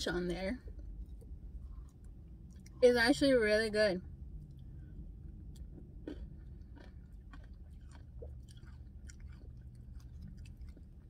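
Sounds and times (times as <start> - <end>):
low steady hum: 0.0 - 11.0
person chewing: 0.7 - 2.8, 4.4 - 11.0.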